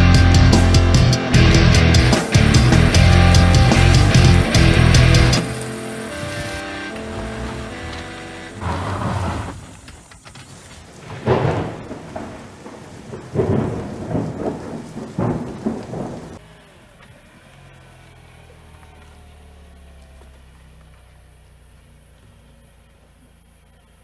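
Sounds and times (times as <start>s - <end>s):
car engine running: 0.0s - 9.5s
rain: 0.0s - 24.0s
thunder claps and rumbles: 10.9s - 16.4s.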